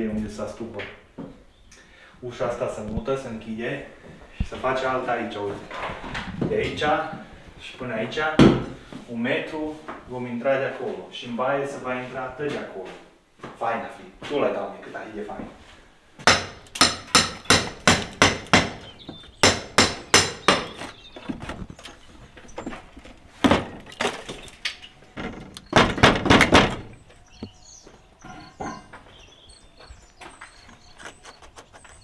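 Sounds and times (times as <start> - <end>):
hammer striking wooden frame: 16.2 - 21.0, 25.2 - 27.0.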